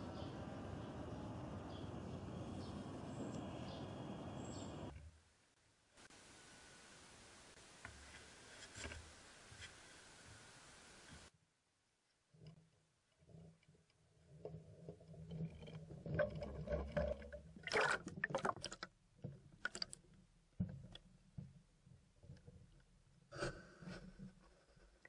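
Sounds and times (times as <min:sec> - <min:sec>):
water sloshing and gurgling: 0:14.3 - 0:21.0.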